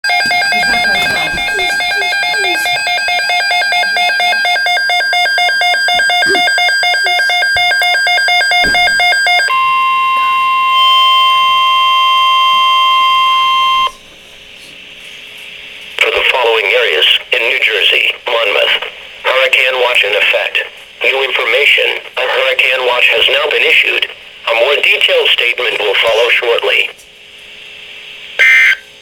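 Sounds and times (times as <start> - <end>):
steady high alarm tone: 0.0 - 14.0, 28.4 - 28.9
pulsing electronic beep alarm: 0.1 - 14.0, 28.4 - 28.8.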